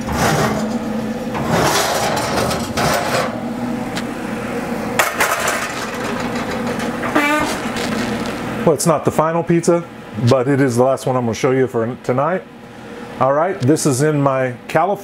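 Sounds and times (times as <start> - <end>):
oven door opening: 0.0 - 3.4, 5.0 - 8.3
pizza pan scraping: 0.0 - 3.4, 5.8 - 8.4
steady low hum: 0.0 - 15.0
clattering: 5.0 - 7.9.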